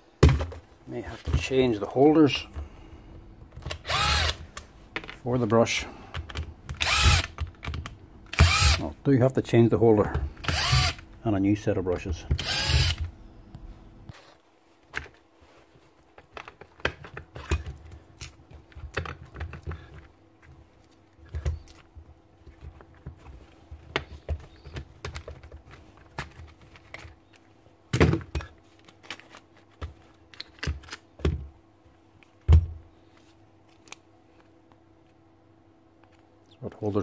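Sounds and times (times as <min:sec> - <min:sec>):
plastic drill parts rattling: 0:03.6 - 0:04.4.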